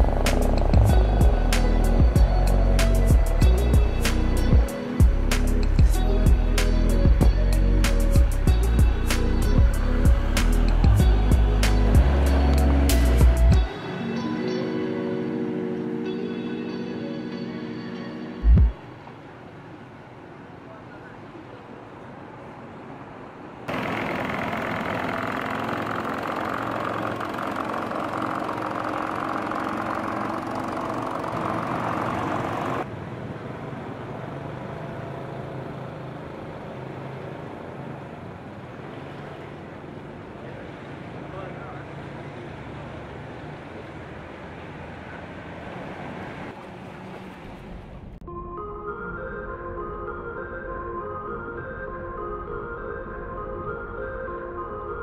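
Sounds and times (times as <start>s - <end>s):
boat engine running: 0.0s - 5.2s, 7.2s - 13.7s, 23.7s - 32.9s
calm ambient music: 0.0s - 19.1s, 48.2s - 55.0s.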